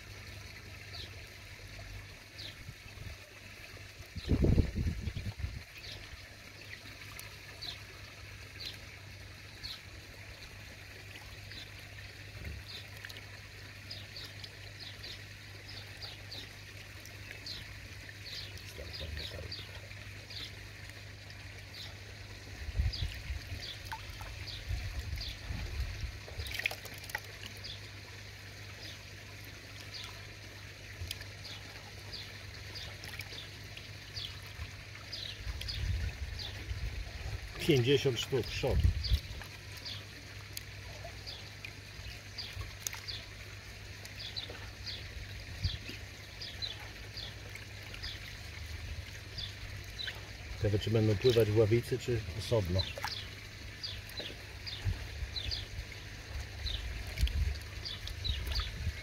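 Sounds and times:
water trickling into pond: 0:00.0 - 0:59.0
high water plinks: 0:30.8 - 0:43.4, 0:45.6 - 0:59.0.

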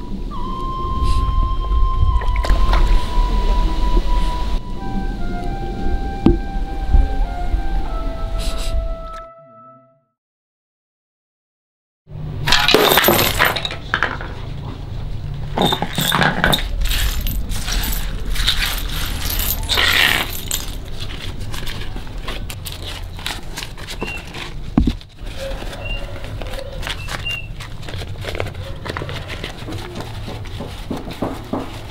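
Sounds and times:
coins and shards clattering on concrete: 0:12.5 - 0:14.5, 0:15.5 - 0:23.2
coins clicking: 0:15.6 - 0:21.7.

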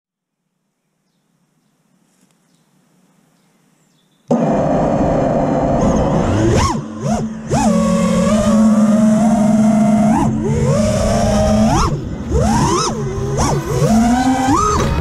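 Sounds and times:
drone motors whining: 0:04.3 - 0:15.0.

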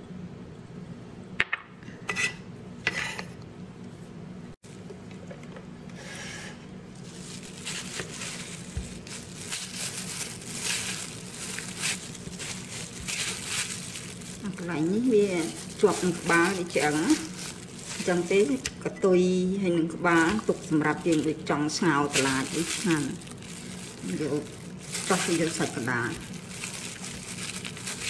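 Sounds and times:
plastic glove rustling on fish: 0:06.9 - 0:18.6, 0:20.0 - 0:28.0.

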